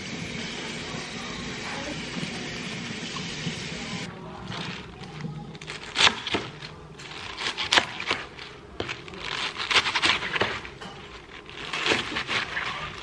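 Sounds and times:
knife crunching spinach stems: 4.4s - 13.0s.

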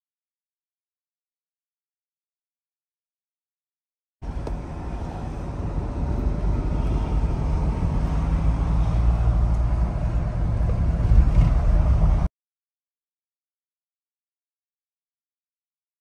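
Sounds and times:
engine and road rumble: 4.2s - 12.3s.

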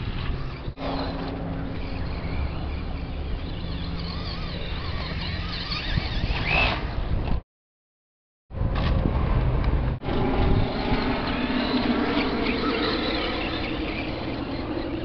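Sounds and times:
electric motor whining: 0.0s - 7.0s, 10.0s - 15.0s.

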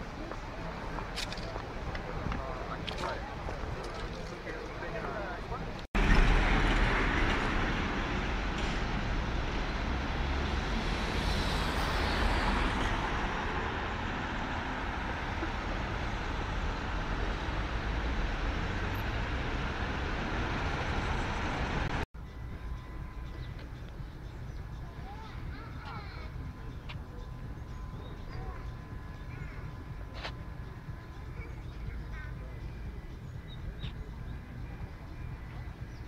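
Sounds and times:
traffic rumble: 0.0s - 36.0s
truck passing close: 6.0s - 22.0s
vehicle passing: 6.0s - 22.0s.

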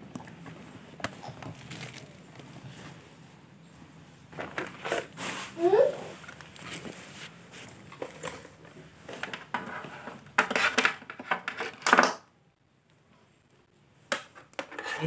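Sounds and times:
short scraping sounds: 14.8s - 15.0s.

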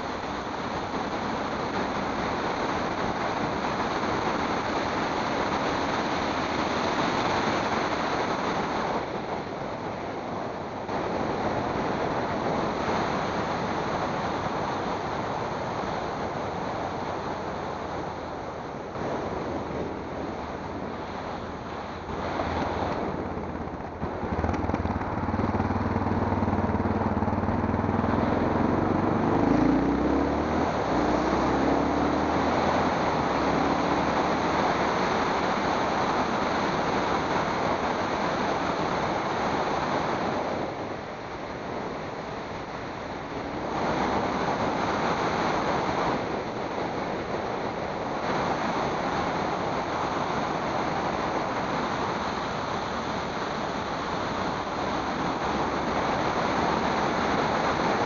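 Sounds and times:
wind rushing over microphone: 0.0s - 58.0s
car engine accelerating: 21.5s - 37.9s.

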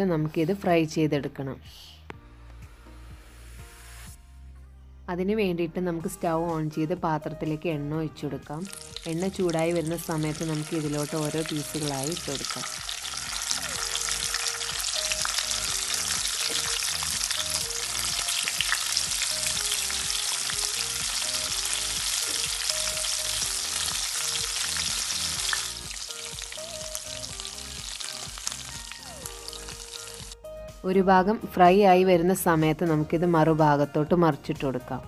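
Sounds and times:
meat sizzling in hot oil: 8.6s - 30.4s.

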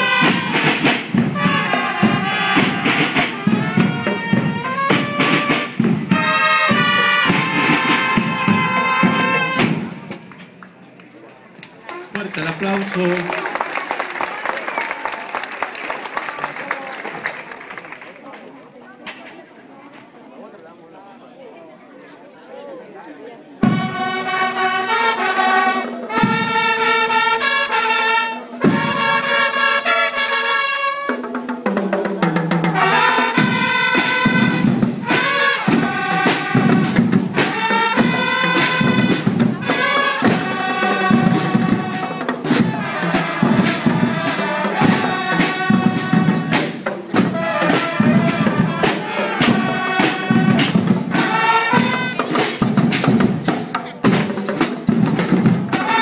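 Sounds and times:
held brass notes: 0.0s - 10.2s, 23.6s - 31.3s, 32.6s - 53.4s, 55.1s - 56.0s
steady drum beat: 0.0s - 10.2s, 31.6s - 56.0s
marching band playing: 0.0s - 10.6s, 23.6s - 56.0s.

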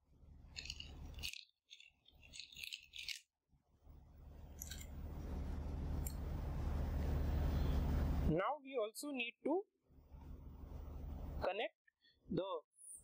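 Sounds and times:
low hum: 3.7s - 8.4s, 10.0s - 11.4s.

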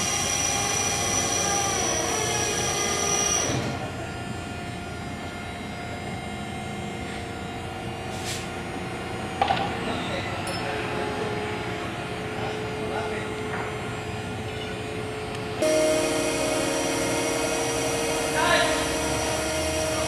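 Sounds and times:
deck machinery drone: 0.0s - 20.0s
high whine: 13.2s - 20.0s.

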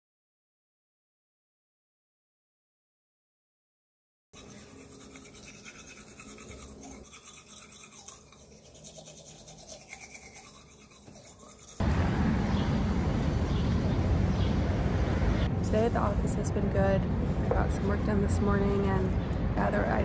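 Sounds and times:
teeth being brushed: 4.4s - 11.8s
outdoor background noise: 4.4s - 20.0s.

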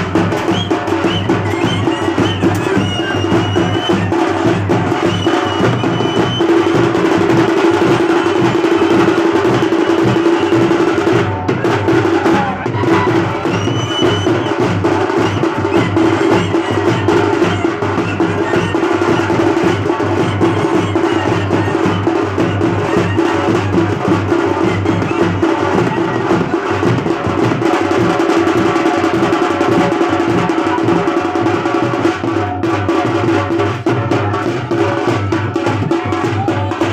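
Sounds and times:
drums beating fast rhythm: 0.0s - 36.9s
clarinet melody: 12.6s - 26.2s.

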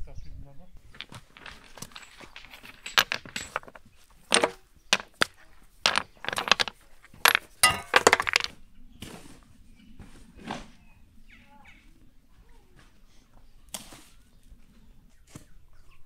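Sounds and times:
stones and trowel clinking: 0.9s - 8.5s.

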